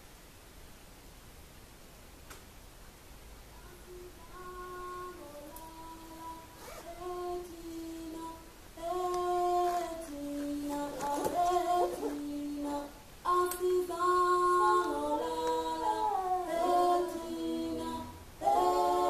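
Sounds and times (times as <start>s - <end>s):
person singing wordless melody: 3.5s - 19.0s.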